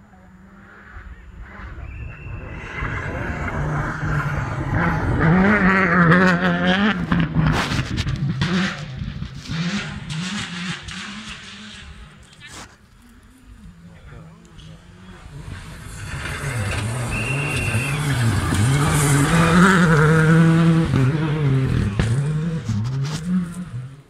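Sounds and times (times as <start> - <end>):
rally car engine revving: 0.0 - 24.0
sharp cracks and gravel noise: 7.0 - 19.3, 21.7 - 23.8.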